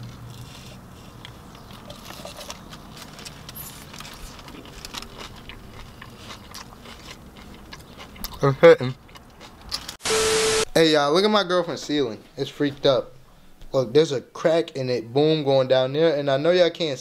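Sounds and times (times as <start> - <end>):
person chewing: 0.0 - 10.0.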